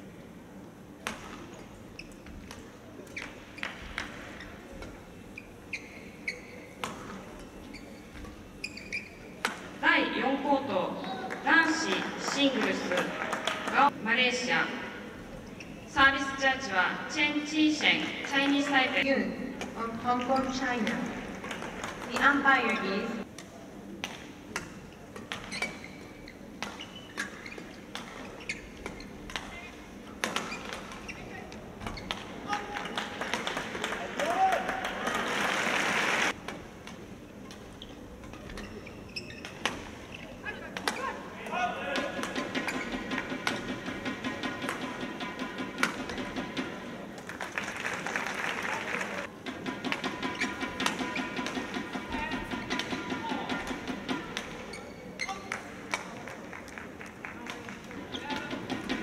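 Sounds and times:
low hall murmur: 0.0s - 59.0s
shoes squeaking on floor: 1.4s - 9.7s, 15.4s - 16.2s, 20.0s - 22.9s, 25.2s - 32.4s, 37.6s - 44.0s, 50.2s - 51.6s, 52.2s - 55.7s, 58.1s - 58.8s
rackets striking shuttlecock: 42.0s - 46.9s, 49.4s - 54.7s.

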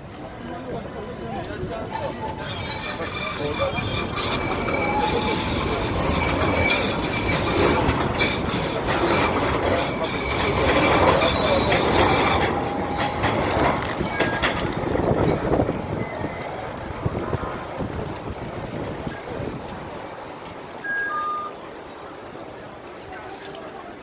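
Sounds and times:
tram rumble: 0.0s - 24.0s
tram wheels squealing: 1.7s - 17.6s.

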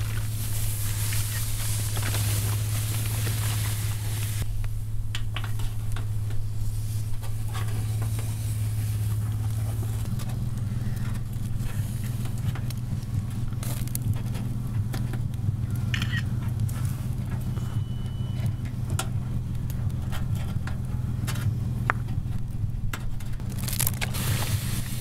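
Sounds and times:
water hissing on hot charcoal: 0.0s - 4.9s, 5.6s - 17.9s, 23.4s - 25.0s
steady low hum: 0.0s - 25.0s.

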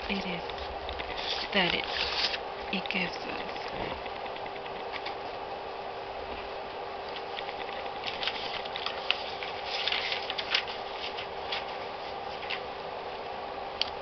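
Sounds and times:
steady background hum: 0.0s - 14.0s
packaging rustling and crinkling: 7.1s - 12.7s.

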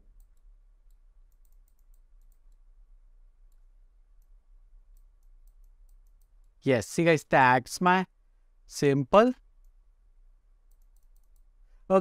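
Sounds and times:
low steady hum: 0.0s - 12.0s
computer mouse clicks: 0.1s - 2.7s, 3.5s - 6.6s, 10.6s - 11.5s.

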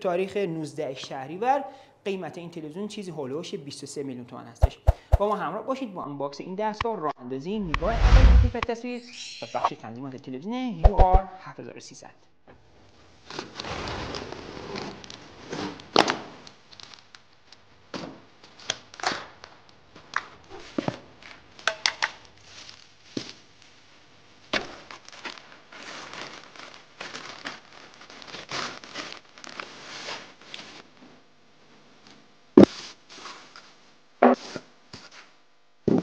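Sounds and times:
cardboard knocks: 4.6s - 5.3s.

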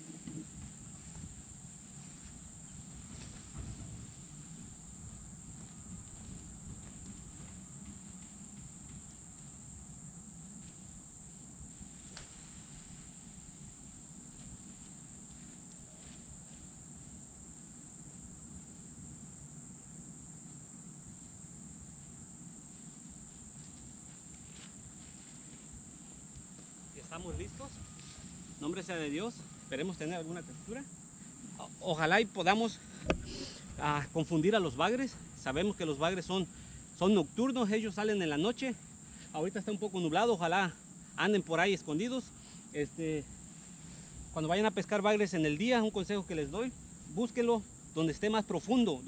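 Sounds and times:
crickets chirping: 0.0s - 49.0s
low background rumble: 25.2s - 37.3s.

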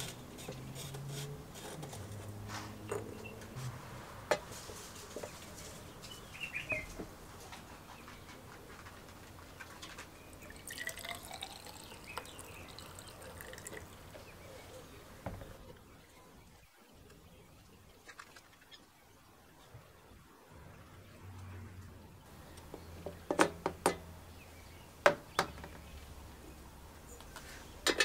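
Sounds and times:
liquid trickling and dripping: 10.3s - 14.4s.

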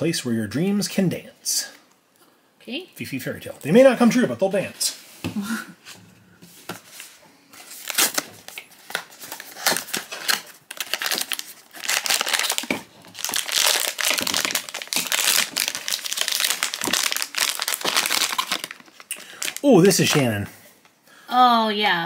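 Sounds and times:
foil wrapper crinkling: 7.6s - 20.2s.

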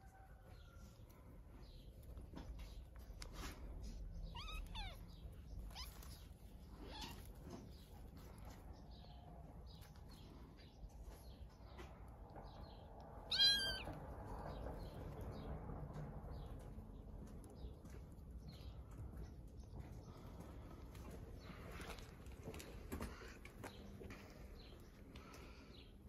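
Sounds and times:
kittens play-fighting: 0.0s - 16.5s
kitten crying: 4.2s - 6.2s, 13.3s - 14.0s.

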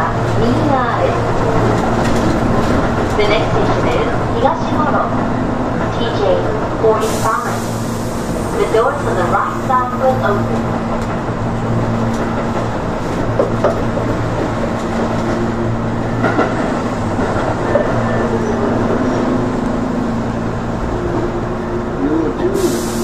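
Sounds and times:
electric train humming: 0.0s - 23.0s.

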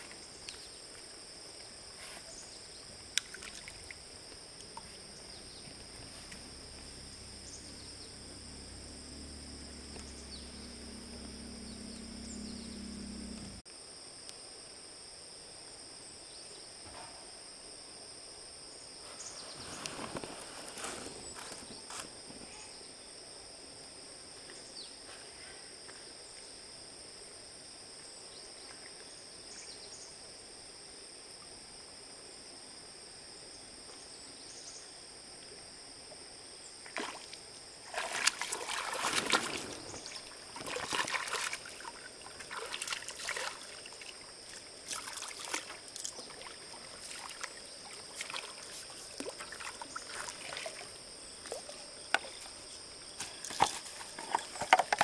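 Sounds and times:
water splashing and sloshing: 0.0s - 7.6s, 36.8s - 55.0s.

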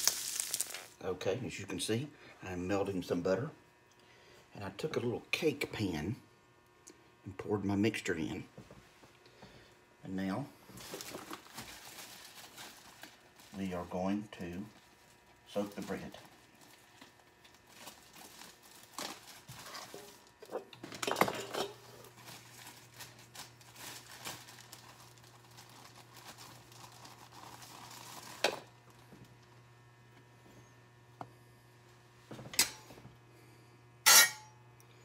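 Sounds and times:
plastic bag rustling: 0.0s - 1.0s, 10.7s - 13.9s, 14.7s - 20.5s, 21.4s - 28.7s
steady low hum: 0.0s - 35.0s.

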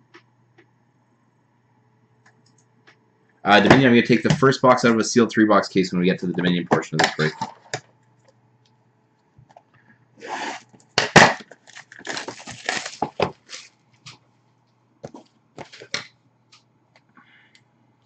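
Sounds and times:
shrink wrap crinkling: 11.4s - 14.2s.

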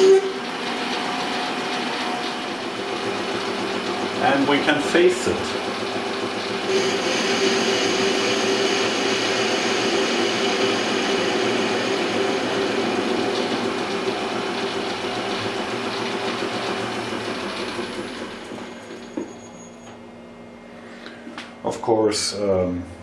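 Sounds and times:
lathe humming: 0.0s - 20.0s
hiss of metal cutting: 6.7s - 12.1s.

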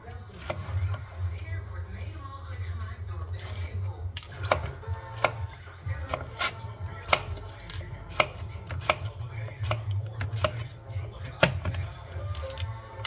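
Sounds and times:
knife chopping on plastic board: 0.3s - 1.0s, 4.2s - 12.6s.

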